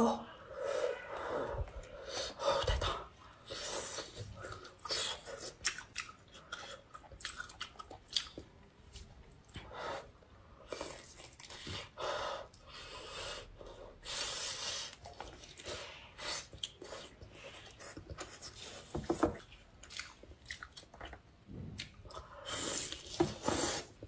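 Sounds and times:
chewing and mouth smacks: 4.3s - 9.7s, 10.7s - 11.9s, 16.4s - 23.2s.

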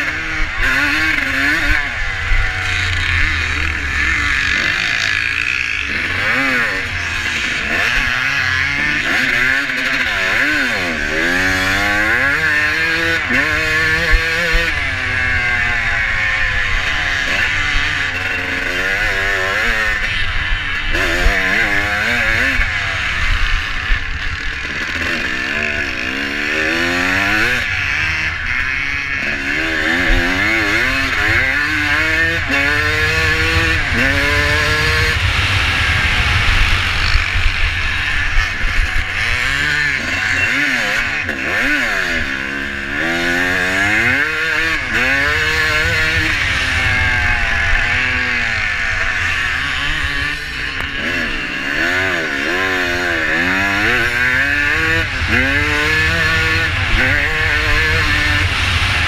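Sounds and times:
motorcycle engine revving: 0.0s - 59.0s
wind noise on microphone: 30.0s - 40.0s, 43.9s - 50.7s, 53.7s - 59.0s.

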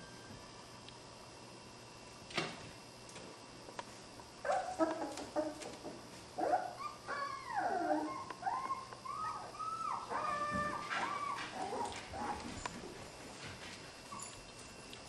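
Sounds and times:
puppies whining and yipping: 6.4s - 12.5s.

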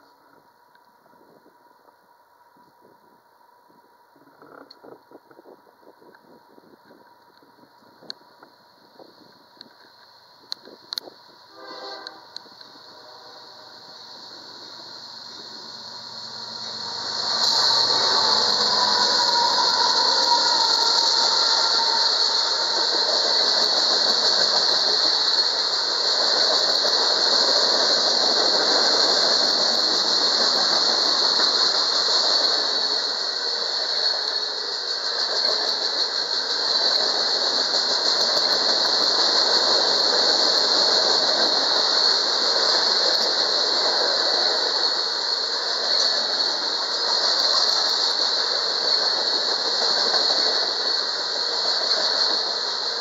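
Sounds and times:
train wheels rumbling on rail: 2.6s - 53.0s
high-pitched wheel squeal: 16.0s - 25.6s.

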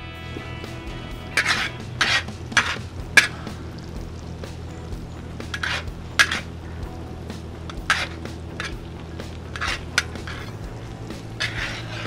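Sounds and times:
steady low hum: 0.0s - 12.0s
metal spatula scraping wok: 1.3s - 3.3s, 5.4s - 6.6s, 7.7s - 12.0s.

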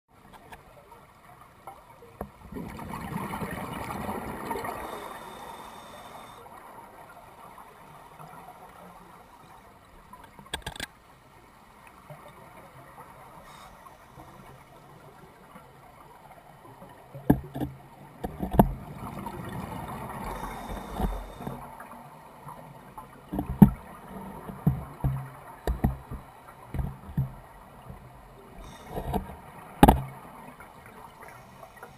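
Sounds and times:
underwater breath bubbling: 2.5s - 6.6s, 13.2s - 15.0s, 18.4s - 21.8s, 28.4s - 30.2s, 31.0s - 31.9s.

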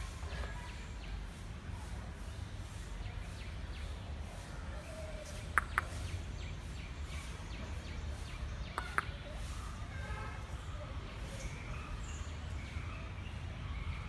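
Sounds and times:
faint bird calls: 0.0s - 14.0s
sharp clicks: 5.5s - 6.0s.

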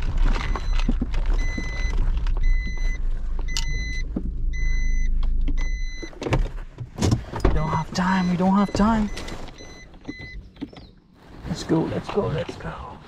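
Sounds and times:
car engine humming: 0.0s - 13.0s
car warning beeps: 0.4s - 6.5s, 7.4s - 11.0s.

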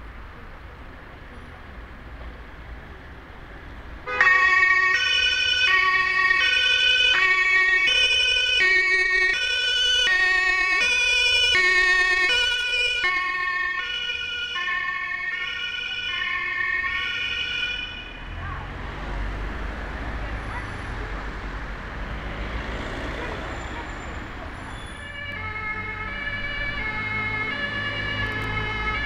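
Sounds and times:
two-tone emergency siren: 4.1s - 18.4s, 24.7s - 29.0s.

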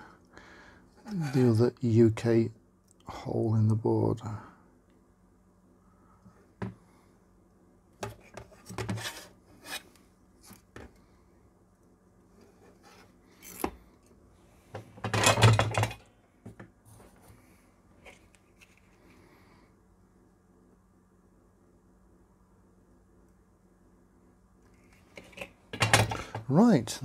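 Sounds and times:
scraping rub: 8.8s - 10.0s
light clicks and rubs of handling: 16.8s - 19.2s.

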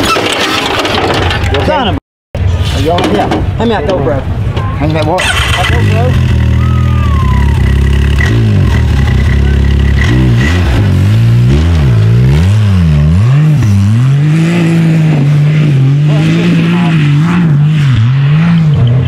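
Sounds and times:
race vehicle engine revving: 5.2s - 19.0s.

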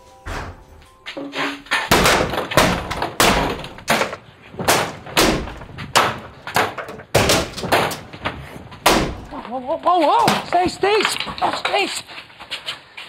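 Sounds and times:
heavy bangs and crashes: 1.3s - 9.4s.

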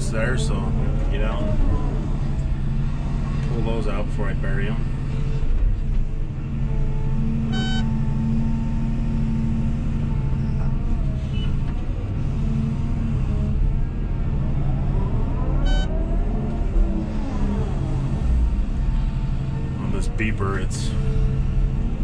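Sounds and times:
excavator diesel engine under load: 0.0s - 22.0s
hydraulics whining: 0.0s - 22.0s
short electronic beeps: 7.5s - 7.9s, 15.6s - 15.9s.

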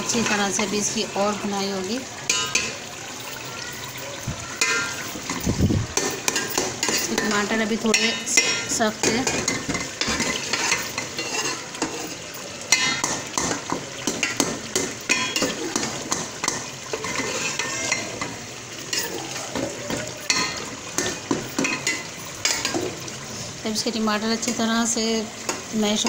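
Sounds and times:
frying sizzle: 0.0s - 26.0s
steel spoon scraping a pot: 10.0s - 13.0s, 16.9s - 19.2s.

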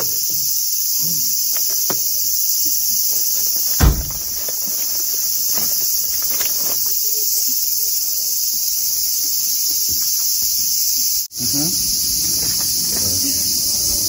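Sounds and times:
cicadas droning: 0.0s - 14.0s
dull thump: 3.7s - 4.6s.

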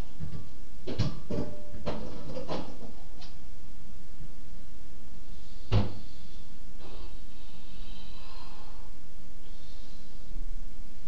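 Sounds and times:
knocks and bumps: 0.0s - 3.4s
steady background hiss: 0.0s - 11.0s.

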